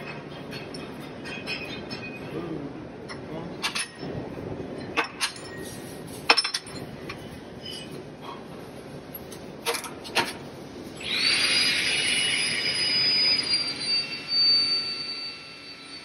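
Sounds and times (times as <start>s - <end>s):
metal grinding hiss and whine: 10.8s - 16.0s.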